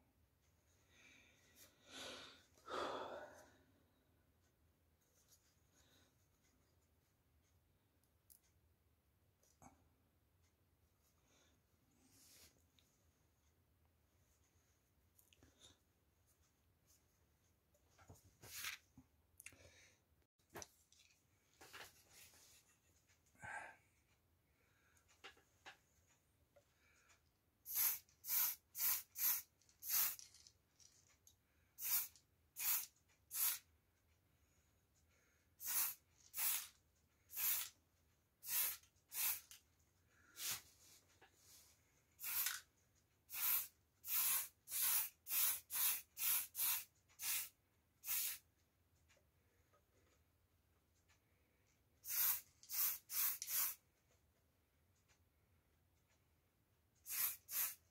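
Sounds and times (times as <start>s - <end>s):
spray paint can hissing: 27.7s - 30.4s, 31.8s - 33.6s, 35.6s - 36.7s, 37.3s - 37.7s, 38.4s - 39.6s, 42.2s - 42.6s, 43.3s - 48.4s, 52.0s - 53.8s, 57.0s - 57.8s.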